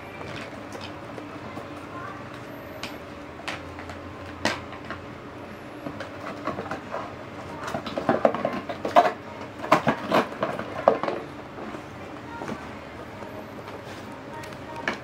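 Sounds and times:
toys clattering and knocking: 0:05.9 - 0:07.0, 0:07.6 - 0:11.3.

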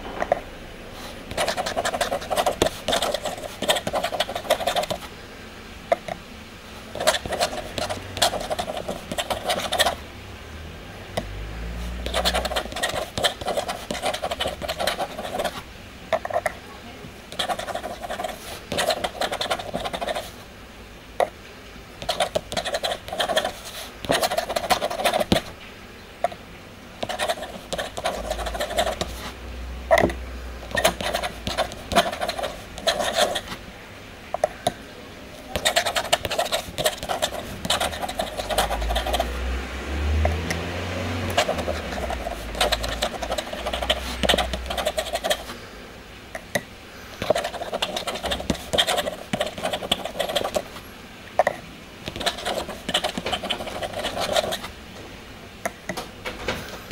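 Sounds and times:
pen nib scratching paper: 0:01.3 - 0:05.1, 0:06.9 - 0:10.0, 0:11.9 - 0:15.6, 0:17.3 - 0:20.4, 0:22.0 - 0:25.5, 0:27.0 - 0:29.3, 0:30.7 - 0:33.6, 0:35.5 - 0:39.4, 0:41.2 - 0:45.6, 0:47.2 - 0:50.8, 0:52.1 - 0:54.7.

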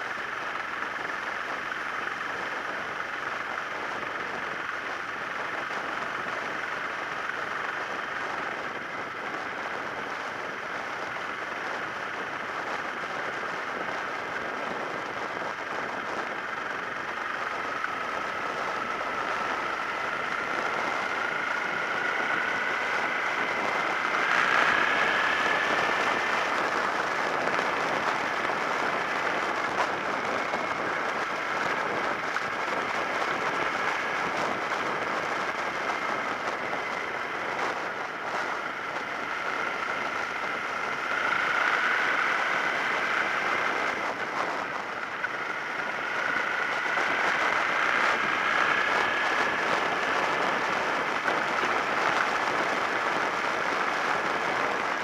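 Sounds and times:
wind and road rush: 0:00.0 - 0:55.0
thin rising whine: 0:14.9 - 0:55.0.

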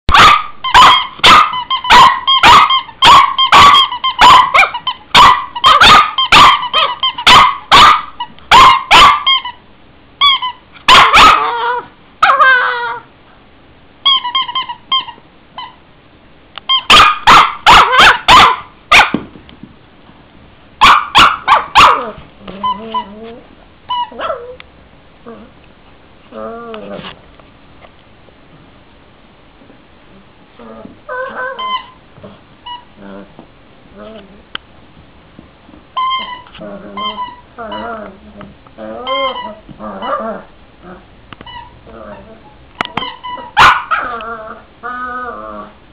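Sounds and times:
dog barking sharply: 0:00.1 - 0:09.4, 0:10.8 - 0:11.6, 0:16.9 - 0:19.2, 0:20.8 - 0:22.2, 0:43.6 - 0:44.0.

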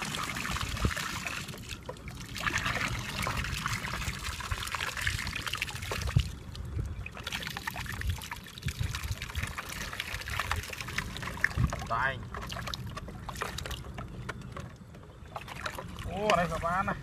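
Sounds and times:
water pouring from plastic bottle: 0:00.0 - 0:13.9
splashing in shallow water: 0:00.0 - 0:14.1, 0:15.2 - 0:17.0.

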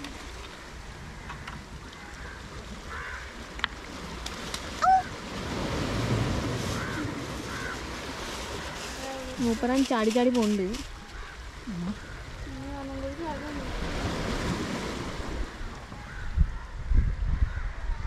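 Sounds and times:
surf washing ashore: 0:00.0 - 0:16.1.

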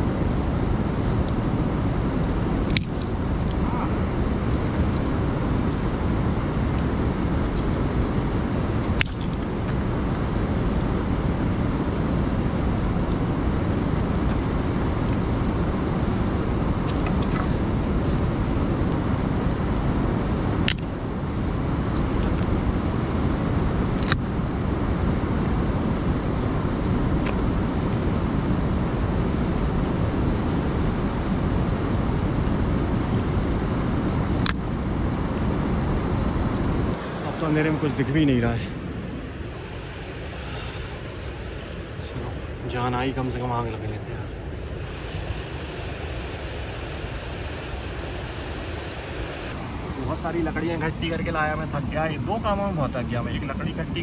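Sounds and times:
steady rushing noise: 0:00.0 - 0:54.0
campfire snaps and cracks: 0:02.0 - 0:05.9, 0:08.7 - 0:09.8, 0:20.6 - 0:21.0, 0:23.9 - 0:24.3, 0:34.3 - 0:34.6.

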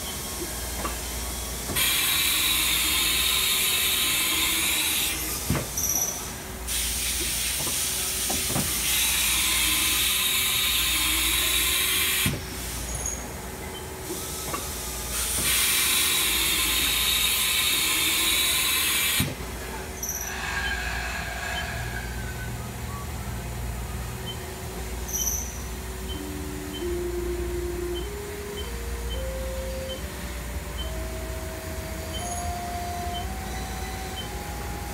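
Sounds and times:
milling machine hiss: 0:00.0 - 0:13.4, 0:14.0 - 0:22.8
rising machine tone: 0:25.1 - 0:34.9.

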